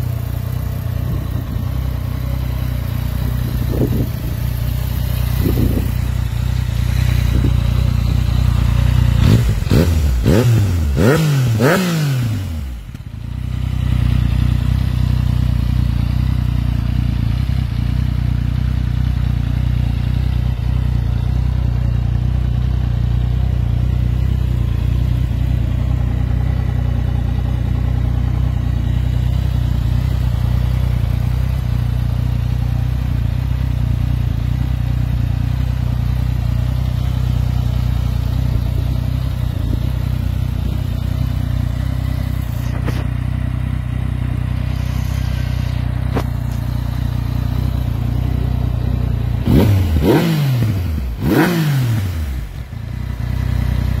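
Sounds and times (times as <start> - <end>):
motorcycle engine idling: 0.0 - 54.0
motorcycle engine revving: 0.0 - 54.0.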